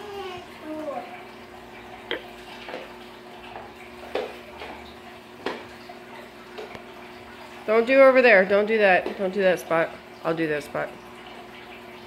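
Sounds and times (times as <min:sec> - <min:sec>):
mop knocking plastic bucket: 0:03.6 - 0:04.8, 0:05.4 - 0:05.7.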